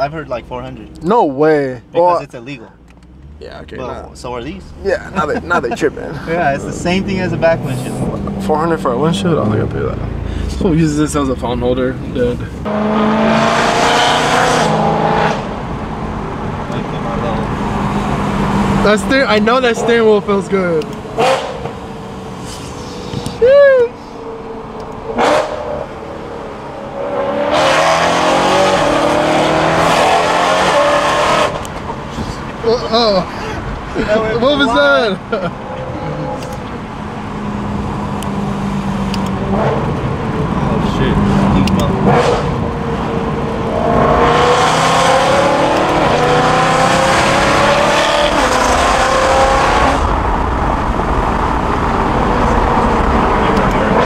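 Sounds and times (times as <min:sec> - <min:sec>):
car engine accelerating: 0:00.0 - 0:54.0
loud rush of noise: 0:21.0 - 0:54.0.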